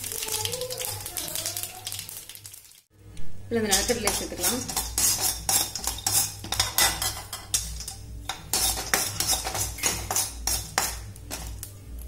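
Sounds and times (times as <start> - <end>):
metal spoon scraping a pan: 3.6 - 11.7
peanuts frying in oil: 3.6 - 11.7.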